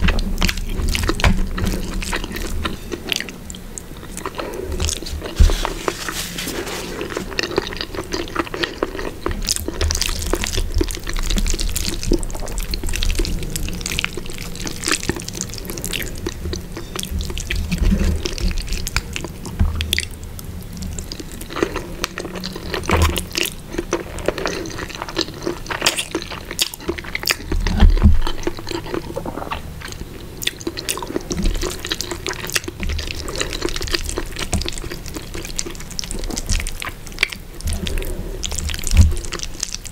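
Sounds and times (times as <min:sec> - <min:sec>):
wet chewing and mouth sounds: 0:00.0 - 0:39.9.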